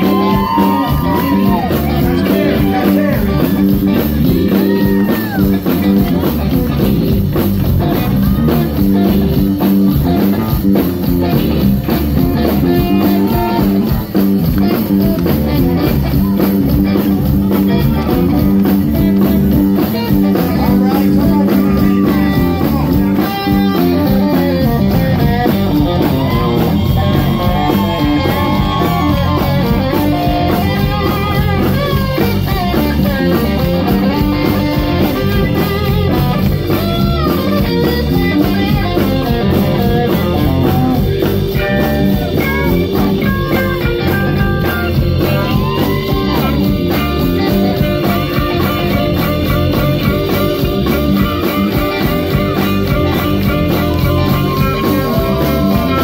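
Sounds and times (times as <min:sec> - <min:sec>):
blues-rock band playing: 0:00.0 - 0:56.0
electric guitar solo: 0:00.0 - 0:56.0.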